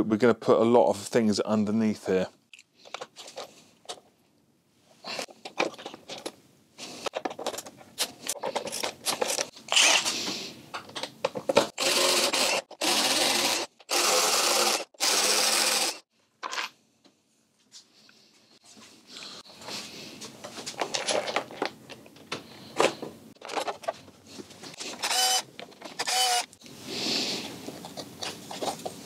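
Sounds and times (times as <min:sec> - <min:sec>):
tools and metal parts clicking: 0:07.1 - 0:09.5
cordless driver whirring: 0:11.8 - 0:16.0, 0:25.0 - 0:26.6.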